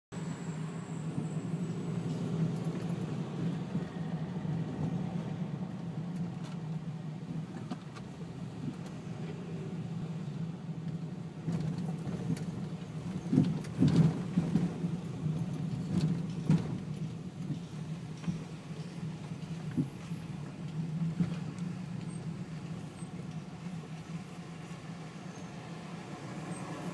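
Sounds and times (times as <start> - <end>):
car engine and road noise: 0.1 - 26.9
knocks and rattles: 11.5 - 18.5.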